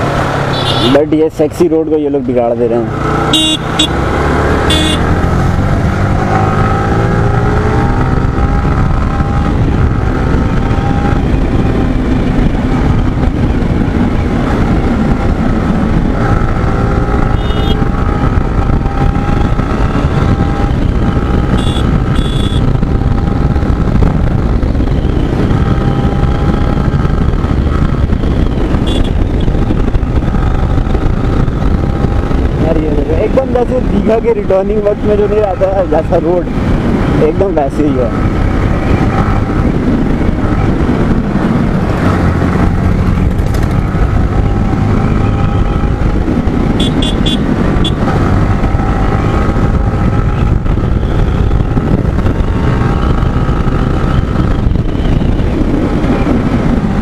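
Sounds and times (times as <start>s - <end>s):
wind rumble on microphone: 0.0s - 57.0s
short horn beeps: 0.5s - 1.0s, 3.3s - 3.9s, 4.7s - 5.0s, 17.4s - 17.8s, 21.6s - 22.6s
motorcycle engine running: 2.8s - 34.0s, 35.4s - 57.0s.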